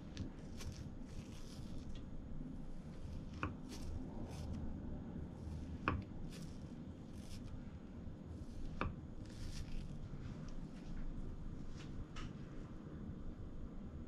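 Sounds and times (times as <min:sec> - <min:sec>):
soft knife strokes: 0:00.0 - 0:02.0, 0:02.7 - 0:04.8, 0:05.4 - 0:07.7, 0:08.3 - 0:10.9.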